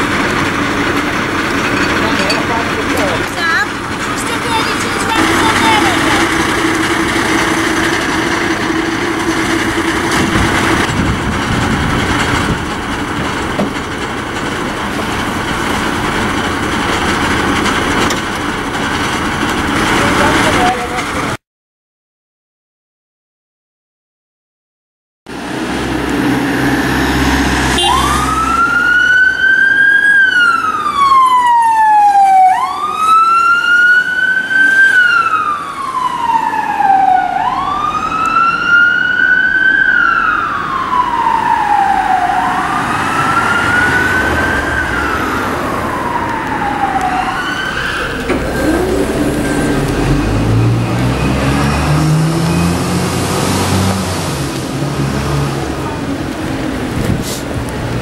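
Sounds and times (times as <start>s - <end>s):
emergency siren wailing: 1.8s - 12.7s, 25.4s - 56.8s
vehicle engine rising in pitch: 25.3s - 56.9s.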